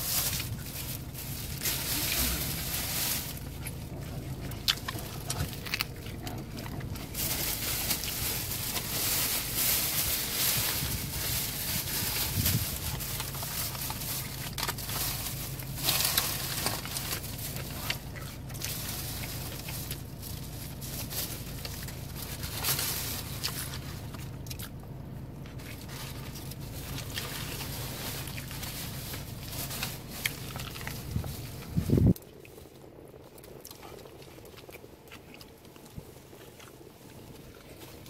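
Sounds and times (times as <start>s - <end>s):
crunches and crackles of handling: 0.0s - 38.0s
steady low hum: 0.0s - 38.0s
person chewing: 0.2s - 10.5s, 23.2s - 38.0s.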